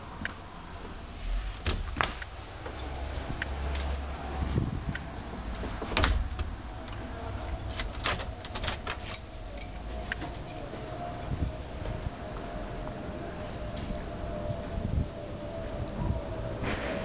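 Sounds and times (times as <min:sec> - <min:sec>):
handling noise rumble: 0:00.0 - 0:17.0
door knocks and clicks: 0:05.9 - 0:06.6.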